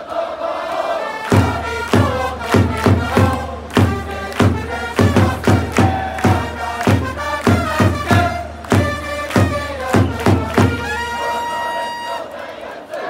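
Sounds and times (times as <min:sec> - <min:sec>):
crowd chanting: 0:00.0 - 0:13.0
trumpets playing: 0:01.2 - 0:12.8
bass drum beats: 0:01.3 - 0:11.1.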